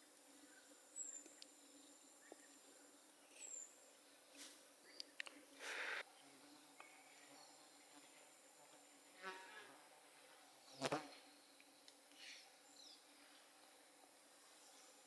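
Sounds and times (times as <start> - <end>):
insect buzzing: 7.3 - 9.8.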